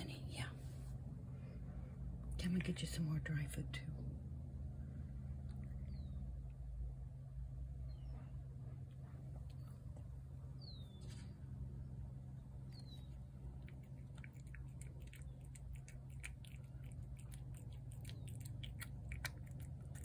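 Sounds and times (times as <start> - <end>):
cat chewing wet food: 12.7 - 20.0.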